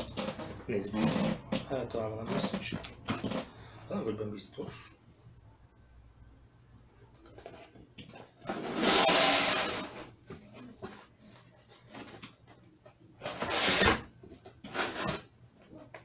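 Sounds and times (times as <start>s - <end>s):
cardboard scraping rustle: 14.7s - 15.3s.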